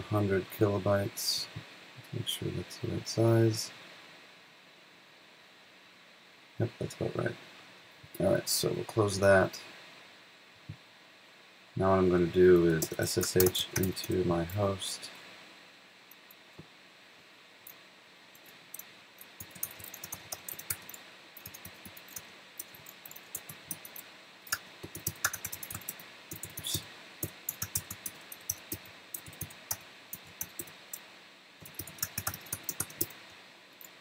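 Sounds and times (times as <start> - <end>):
computer keyboard typing: 12.6 - 14.6, 19.2 - 30.8, 31.6 - 33.2.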